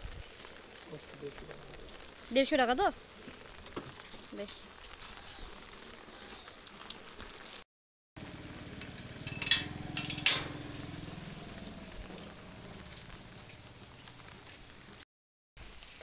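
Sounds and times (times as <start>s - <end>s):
rain falling on wet lane: 0.0s - 7.6s, 8.2s - 15.0s, 15.6s - 16.0s
scooter engine humming: 8.2s - 14.5s
iron gate clanking shut: 9.0s - 12.2s.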